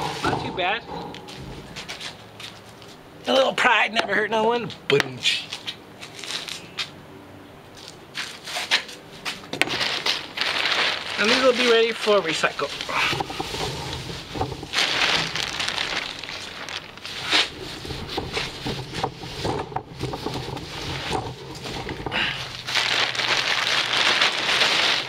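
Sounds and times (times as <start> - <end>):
plastic bag crinkling: 9.6 - 25.0.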